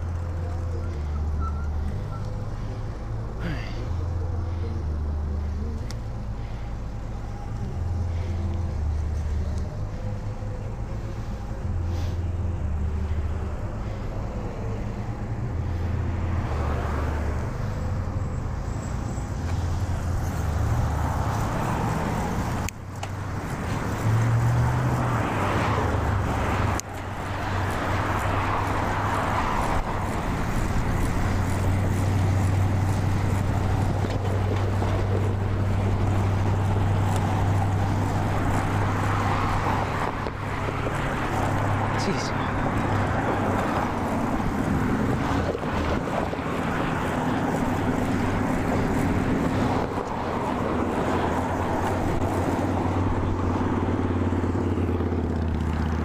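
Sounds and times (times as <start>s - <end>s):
passing motor traffic: 0.0s - 56.0s.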